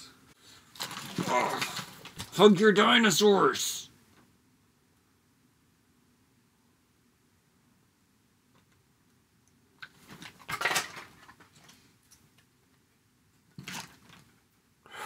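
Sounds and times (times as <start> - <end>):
plastic toys clattering on table: 0.8 - 2.4, 9.8 - 11.8, 13.6 - 14.3.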